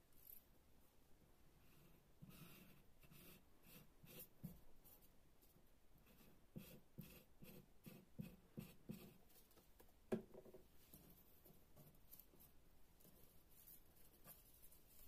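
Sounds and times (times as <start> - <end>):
knock on table: 10.1 - 10.6.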